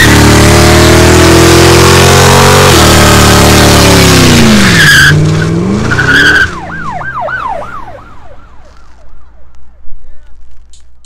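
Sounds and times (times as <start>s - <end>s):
car engine revving hard: 0.0s - 6.5s.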